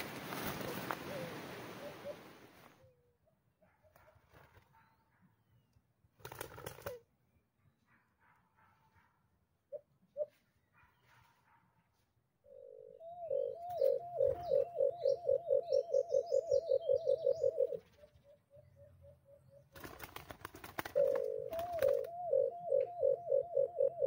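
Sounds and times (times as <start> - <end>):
dove hooting: 0.0 - 3.1, 9.7 - 10.5, 12.4 - 24.0
small bird chirps: 12.5 - 19.9
crackling noise: 19.8 - 24.0.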